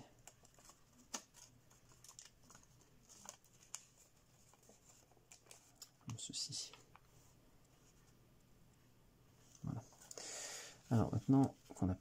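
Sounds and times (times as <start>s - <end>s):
paper crackling as creased: 0.2s - 5.7s.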